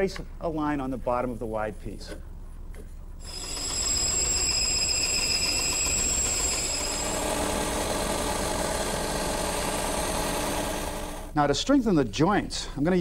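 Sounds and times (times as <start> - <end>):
low machine hum: 0.2 - 11.4
band saw cutting wood: 3.3 - 11.3.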